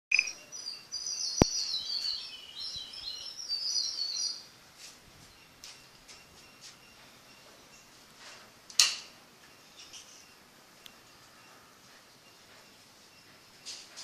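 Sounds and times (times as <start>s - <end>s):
small birds chirping: 0.1s - 8.2s.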